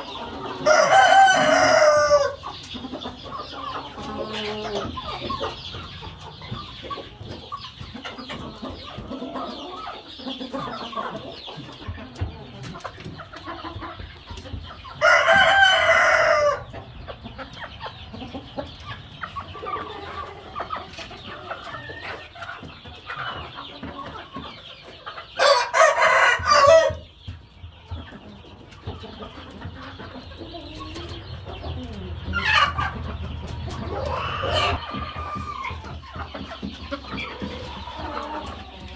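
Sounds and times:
roosters crowing: 0.0s - 5.6s, 14.7s - 17.4s, 19.2s - 24.3s, 24.9s - 27.2s, 29.8s - 38.9s
chickens clucking: 0.0s - 38.9s.

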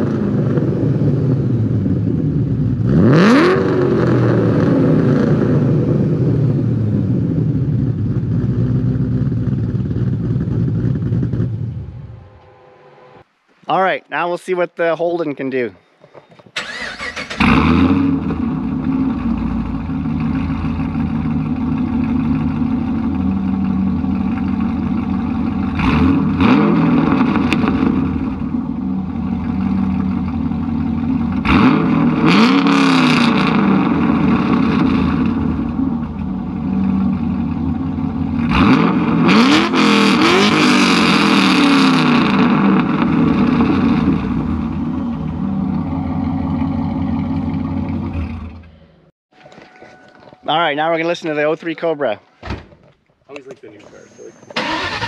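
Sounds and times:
car engine revving: 0.0s - 13.4s, 16.6s - 49.1s, 54.6s - 55.0s
car engine idling loudly: 18.2s - 48.8s.

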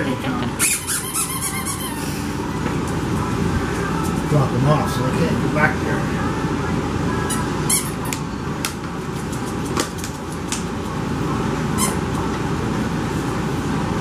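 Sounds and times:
steady background hum: 0.0s - 14.0s
puppies scampering clicks and squeaks: 8.1s - 11.0s.

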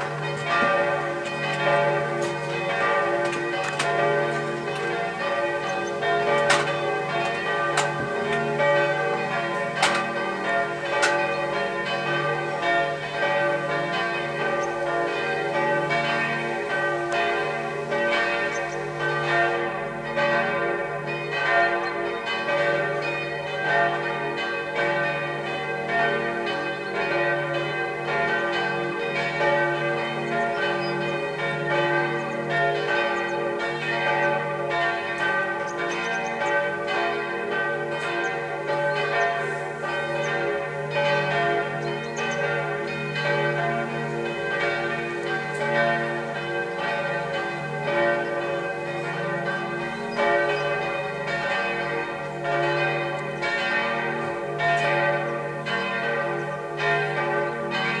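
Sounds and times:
church bells ringing: 0.0s - 58.0s.

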